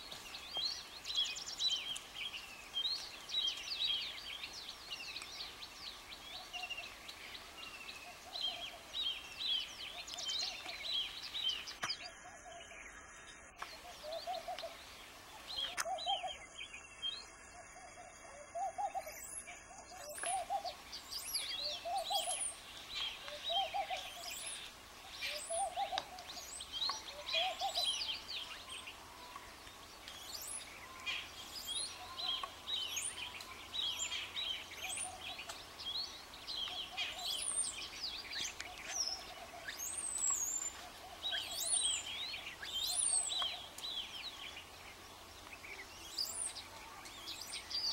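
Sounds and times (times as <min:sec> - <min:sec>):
small birds chirping: 0:00.0 - 0:47.9
low hooting bird call: 0:21.4 - 0:22.6, 0:23.2 - 0:29.5.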